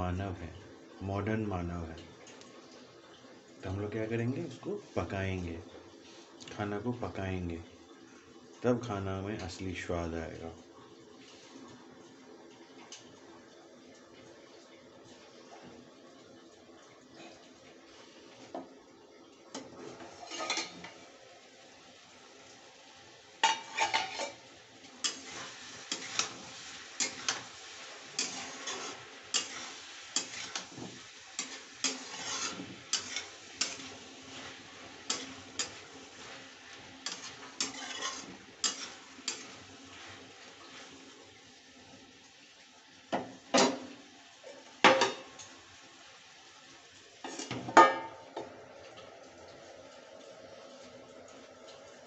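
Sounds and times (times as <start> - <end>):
faint sizzle: 0.0 - 52.0
spatula scraping a pan: 19.6 - 21.0, 23.4 - 24.4, 25.0 - 40.9, 47.2 - 47.6.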